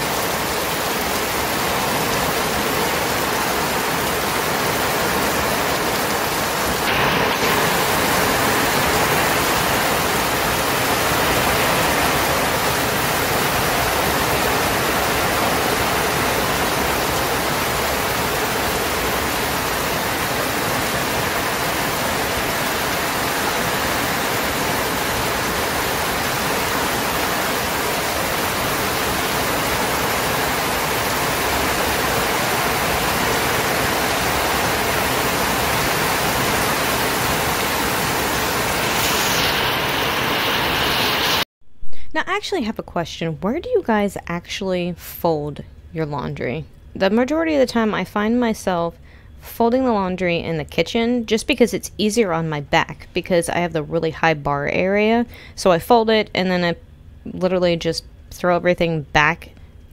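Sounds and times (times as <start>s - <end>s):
water rushing: 0.0s - 41.5s.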